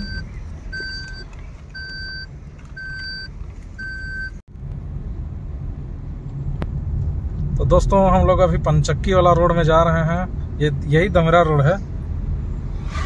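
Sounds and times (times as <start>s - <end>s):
car warning beeper: 0.0s - 4.4s
engine and tyre rumble: 0.0s - 13.0s.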